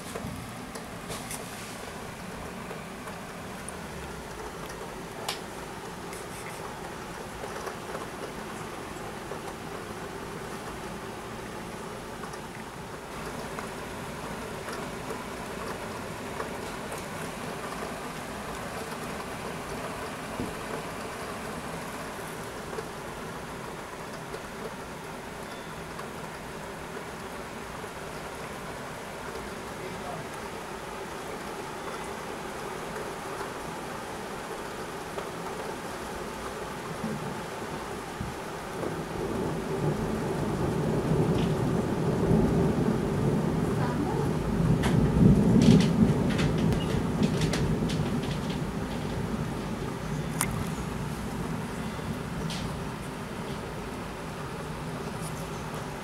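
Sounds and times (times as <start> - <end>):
steady rain hiss: 0.0 - 56.0
thunder rumbling: 38.2 - 56.0.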